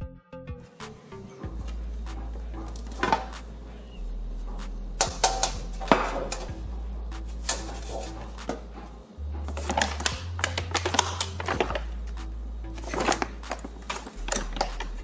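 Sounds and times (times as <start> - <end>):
background music with bass: 0.0 - 15.0
metal tray clicking and tapping: 5.0 - 6.5.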